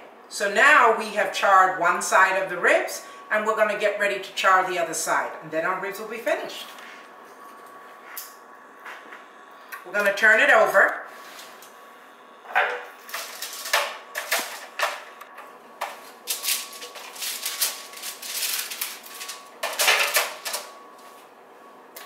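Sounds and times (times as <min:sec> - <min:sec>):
aluminium foil crinkling: 0:13.0 - 0:14.8, 0:15.9 - 0:20.8.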